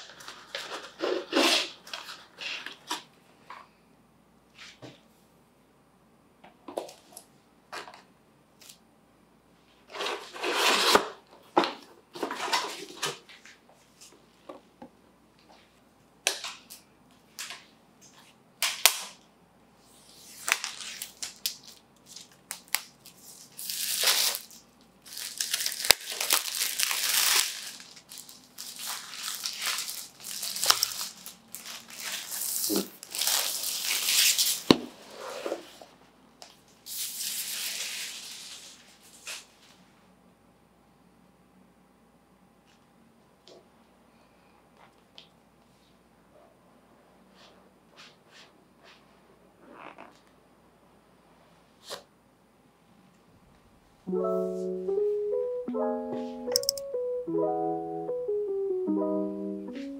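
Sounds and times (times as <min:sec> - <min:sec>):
plastic wrap crinkling: 0:20.4 - 0:34.7
box clicks and taps: 0:56.5 - 0:56.8.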